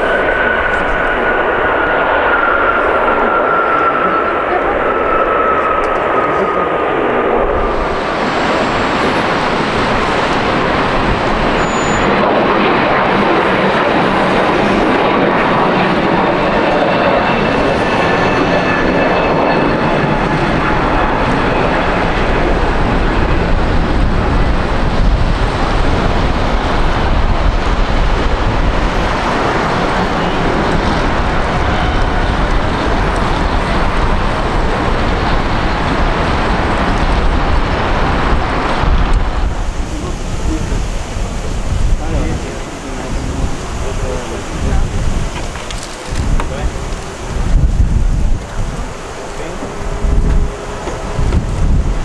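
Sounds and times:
jet engines roaring: 0.0 - 52.0
faint high whine: 10.8 - 12.4.

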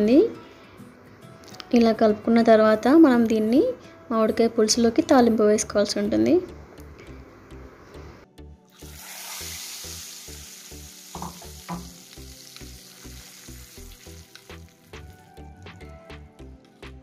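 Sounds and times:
hot oil sizzling in water: 8.7 - 15.5.

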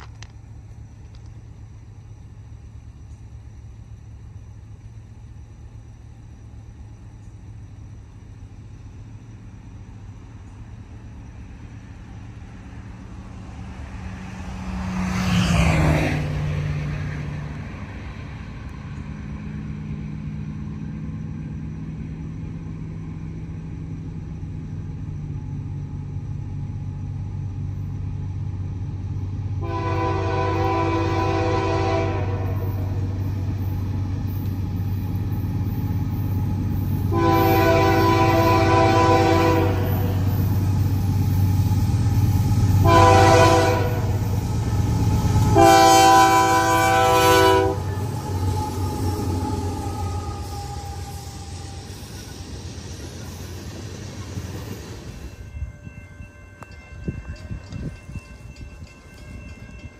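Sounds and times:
deep diesel drone: 0.0 - 14.7, 15.8 - 55.1
engine rumble: 0.0 - 59.9
passing road vehicle: 10.0 - 55.6.

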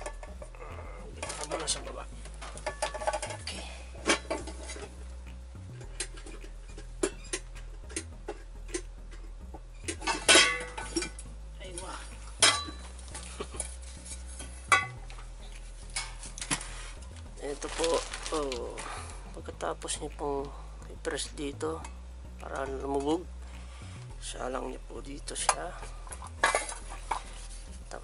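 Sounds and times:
metal pot clinking and clanking: 1.2 - 5.0, 9.8 - 11.3, 12.4 - 15.2, 25.5 - 27.4.

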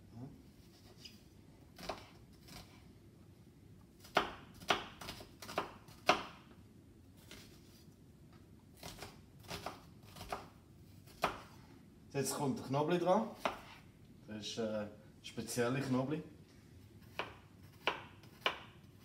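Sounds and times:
knife chopping on cutting board: 1.8 - 2.8, 4.0 - 6.5, 11.1 - 11.6, 13.4 - 13.8, 17.0 - 18.8.

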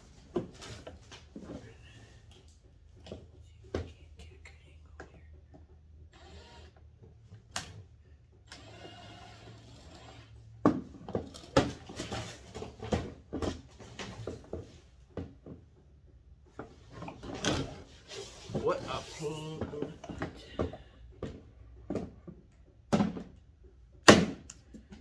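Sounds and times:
cordless drill whirring: 6.1 - 6.8, 8.4 - 10.3.

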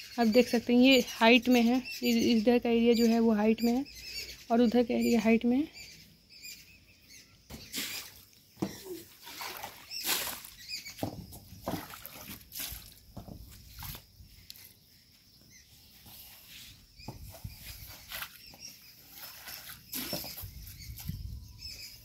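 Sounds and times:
broom sweeping water on tiles: 7.6 - 8.3, 9.0 - 11.0, 11.6 - 14.0, 17.6 - 20.4.

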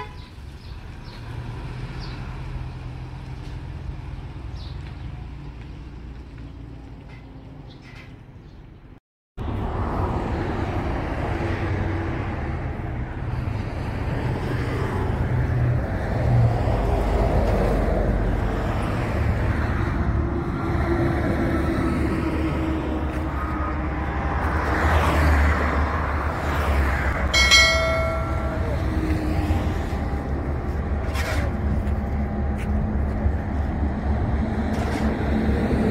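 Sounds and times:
vehicle horn: 0.0 - 0.3
highway traffic rumble: 0.0 - 35.9.

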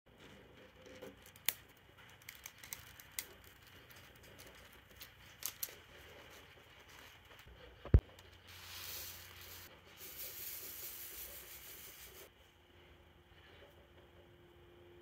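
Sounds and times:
plastic film clicks and crinkles: 0.9 - 5.9.

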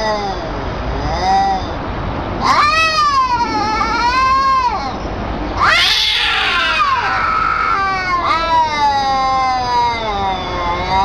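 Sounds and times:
cats yowling: 2.4 - 11.0.

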